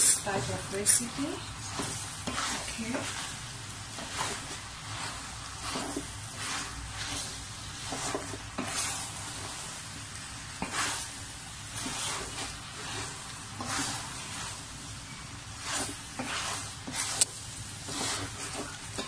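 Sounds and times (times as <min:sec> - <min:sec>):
food sizzling: 0:00.0 - 0:19.0
spoon scraping a metal pot: 0:00.7 - 0:03.3, 0:11.8 - 0:17.3.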